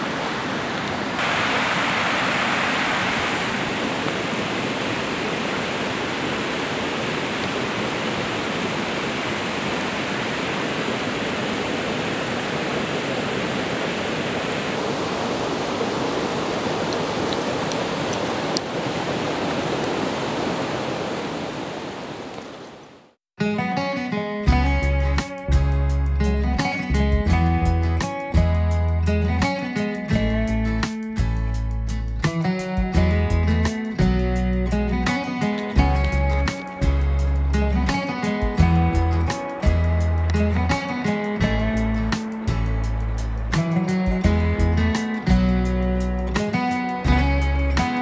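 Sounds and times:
river water rushing: 0.0 - 23.2, 35.0 - 48.0.

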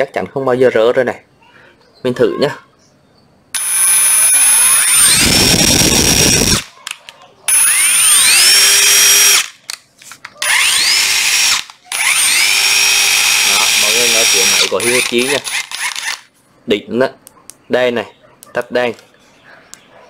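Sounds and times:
impact driver motor whine: 3.6 - 6.6, 7.5 - 9.5, 10.4 - 16.2
impact driver rattling: 10.5 - 16.2.

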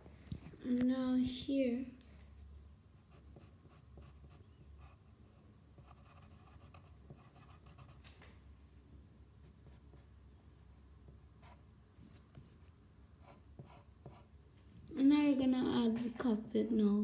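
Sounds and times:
pencil scratching on paper: 3.0 - 8.2, 9.4 - 14.3.

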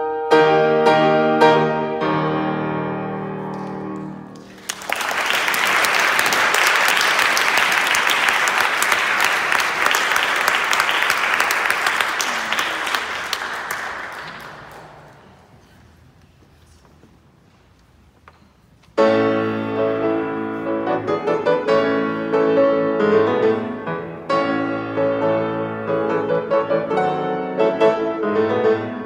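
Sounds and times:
loud piano chords: 0.0 - 15.5, 19.0 - 29.0
audience applauding: 4.4 - 15.5.

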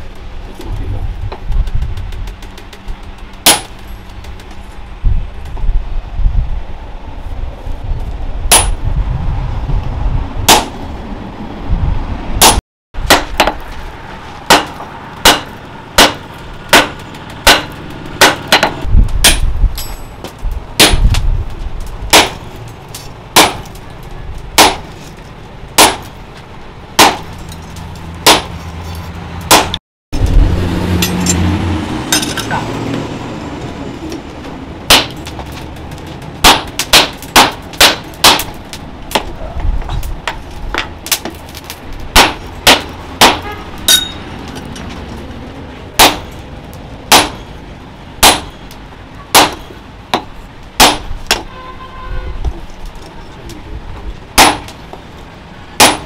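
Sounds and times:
hammer clanging on metal: 42.2 - 44.3, 55.8 - 56.0.

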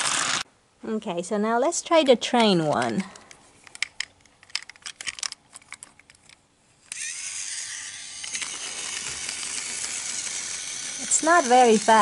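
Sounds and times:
small electric motor whirring: 0.0 - 0.4, 6.9 - 12.0
plastic clicks of toy train: 2.0 - 12.0.

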